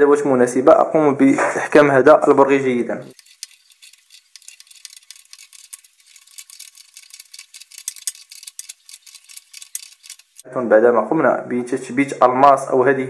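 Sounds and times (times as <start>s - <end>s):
wrench tightening nut with metal clicks: 3.1s - 10.4s.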